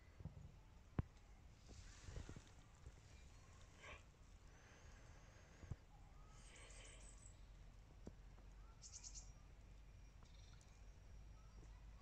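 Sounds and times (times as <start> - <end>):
high-pitched bird calls: 8.7 - 9.4.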